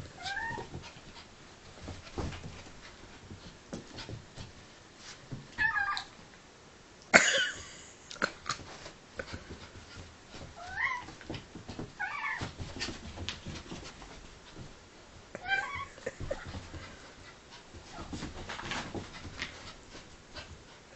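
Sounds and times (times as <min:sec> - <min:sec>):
light knocks and scuffles: 0:00.1 - 0:05.6, 0:08.6 - 0:15.3, 0:16.2 - 0:20.9
cat meowing and yowling: 0:00.2 - 0:00.7, 0:05.6 - 0:06.1, 0:10.6 - 0:11.1.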